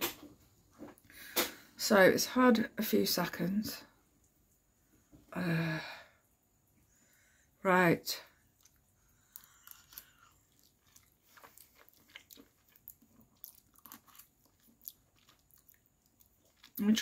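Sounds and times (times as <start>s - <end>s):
person chewing: 8.5s - 17.0s.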